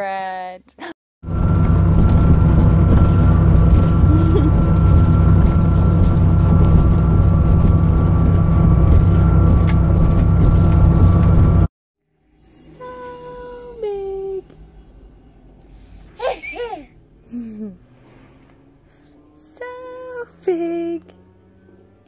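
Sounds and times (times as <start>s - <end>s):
motor running with high whine: 1.2s - 11.7s.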